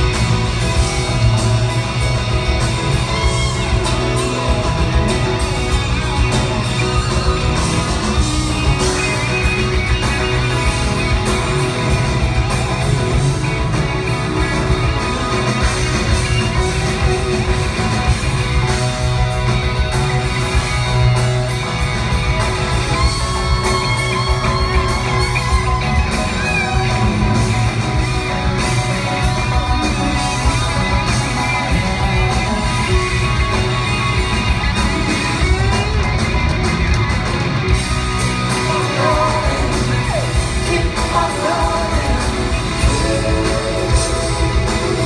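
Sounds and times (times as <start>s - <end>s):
audience whooping and shouting: 0.0s - 10.4s, 22.2s - 36.7s
live rock band: 0.0s - 45.0s.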